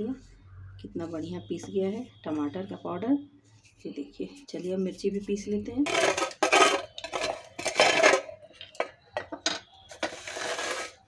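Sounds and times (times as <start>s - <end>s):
spoon scraping steel plate: 5.9s - 8.4s, 9.9s - 11.0s.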